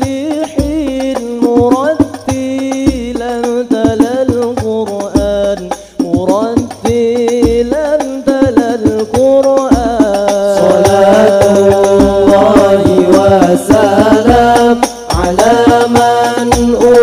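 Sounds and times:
low irregular drumbeat: 0.0 - 17.0
voices singing long ornamented notes: 10.4 - 17.0.

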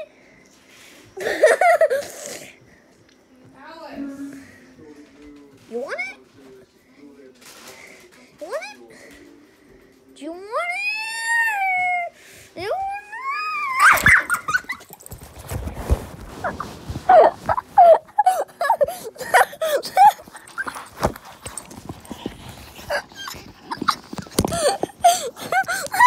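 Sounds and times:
dog whining and yipping: 13.2 - 15.0.

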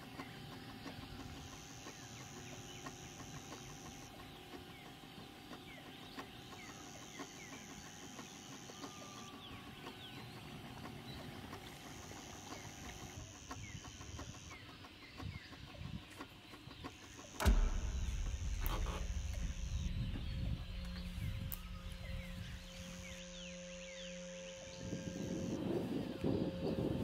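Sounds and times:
steady low hum: 0.0 - 27.0
faint bird chirps: 0.1 - 27.0
sudden thump: 17.4 - 23.2
wind on the microphone: 17.4 - 23.2, 24.7 - 27.0.

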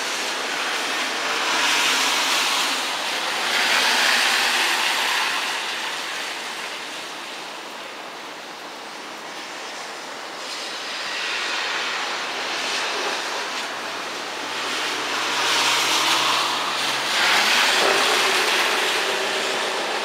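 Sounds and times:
rain hissing: 0.0 - 20.0
wet road traffic: 0.0 - 20.0
vehicle passing with engine hum: 10.5 - 20.0.

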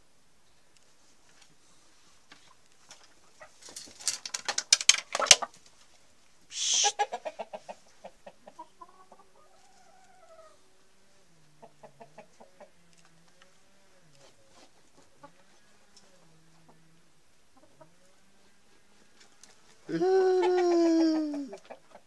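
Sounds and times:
chickens clucking softly: 2.4 - 3.8, 6.5 - 22.0
chicken wavering call: 6.5 - 7.3, 19.9 - 21.8
chickens squawking: 6.5 - 10.8, 17.5 - 22.0.

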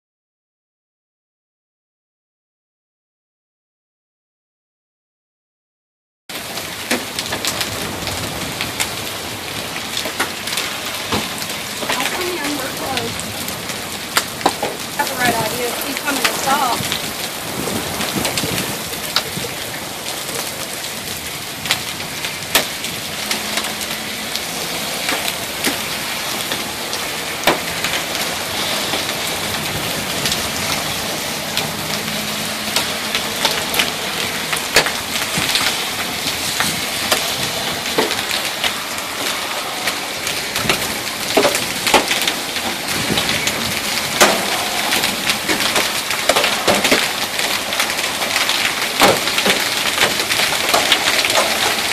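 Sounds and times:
hailstones striking hard surfaces: 6.3 - 23.7, 32.6 - 51.9
heavy rain hissing: 6.4 - 51.9.

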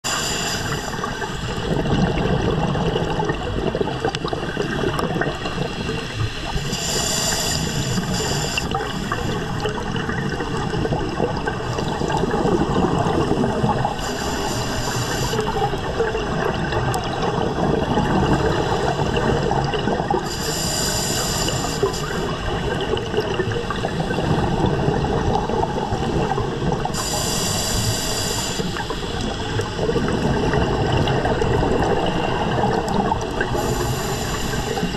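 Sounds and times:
regulator inhalation hiss: 0.1 - 1.6, 5.8 - 9.8, 13.9 - 15.8, 20.2 - 22.6, 26.9 - 29.5, 33.5 - 34.9
gurgling exhaled bubbles: 0.1 - 34.9.

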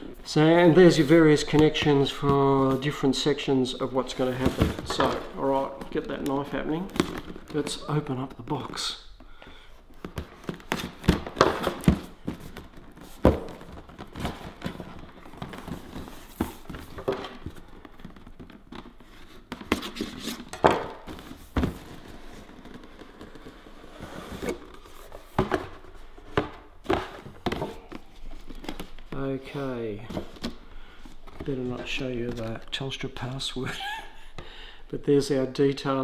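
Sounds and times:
cardboard scraping and knocking: 10.0 - 29.1.

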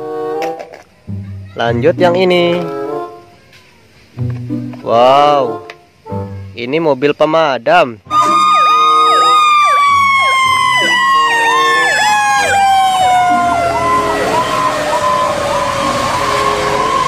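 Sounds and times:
electronic siren yelp: 8.1 - 17.0
wailing siren: 8.1 - 17.0.

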